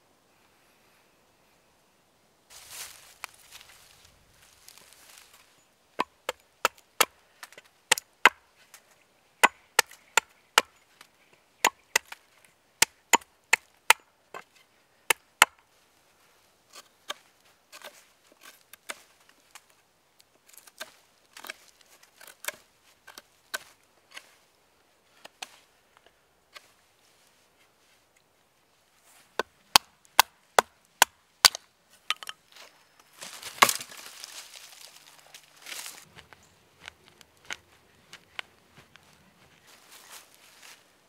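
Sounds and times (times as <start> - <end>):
hatchet chopping wood: 6.0 - 8.4, 9.4 - 10.8, 11.6 - 12.2, 12.8 - 14.5, 15.1 - 15.6, 29.4 - 32.4, 33.5 - 34.0.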